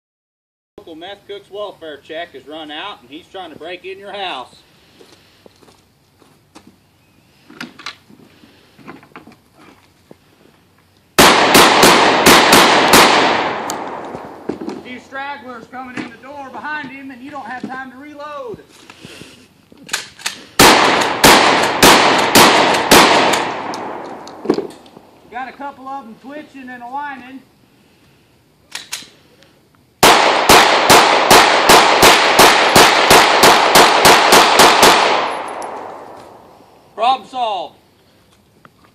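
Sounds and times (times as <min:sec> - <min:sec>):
gunshots with echo: 0:11.2 - 0:14.5, 0:20.6 - 0:24.4, 0:30.0 - 0:36.4
sharp clicks: 0:21.0 - 0:25.0, 0:28.7 - 0:29.1.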